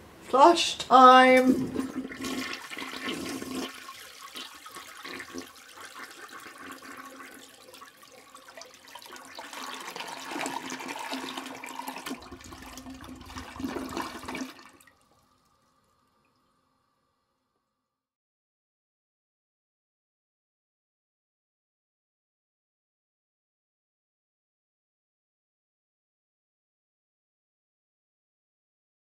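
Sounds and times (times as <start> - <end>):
toilet flushing: 1.4 - 16.4.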